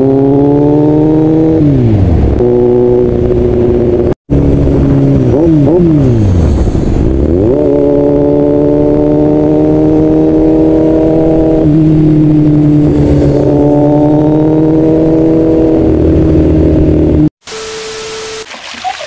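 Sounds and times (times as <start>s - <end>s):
motorcycle engine running: 1.0s - 7.6s.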